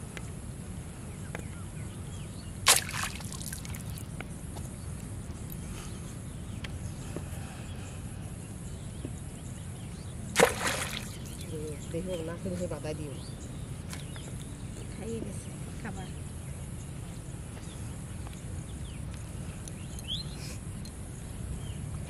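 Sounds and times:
low steady background noise: 0.0 - 22.0
water splashes: 2.6 - 4.1, 10.3 - 11.5.

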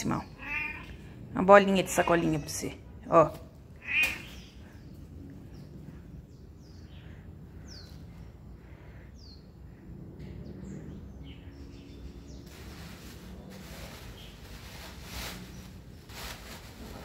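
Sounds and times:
soft rustling: 12.4 - 17.0.

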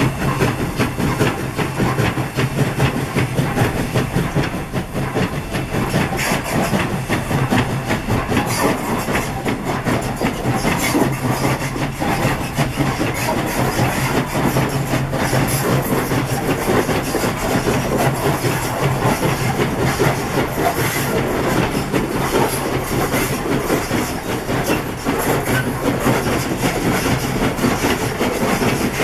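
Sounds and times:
steam locomotive exhaust and rail strokes: 0.0 - 29.0.

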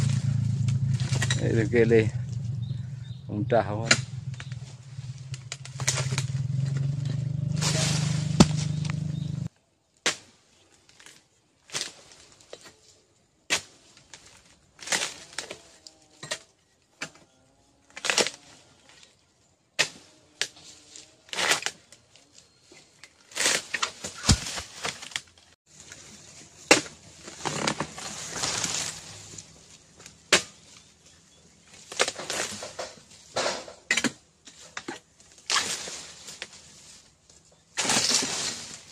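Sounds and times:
chisel chopping palm stalks: 0.0 - 2.0, 3.7 - 10.4, 13.5 - 17.3, 17.9 - 18.4, 19.8 - 21.9, 23.3 - 25.2, 25.9 - 30.9, 31.7 - 36.6, 37.7 - 38.9
loud low rumble: 0.0 - 9.5
rustling: 4.0 - 9.5, 20.6 - 38.9.

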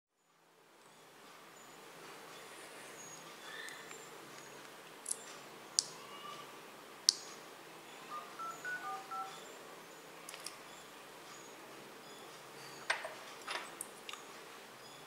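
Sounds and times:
phone keypad beeps: 8.1 - 9.4.

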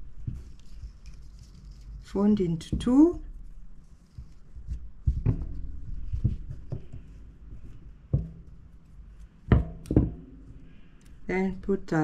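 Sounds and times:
fabric rustling: 0.0 - 11.3
dull handling knocks: 4.2 - 8.7, 9.4 - 10.6.

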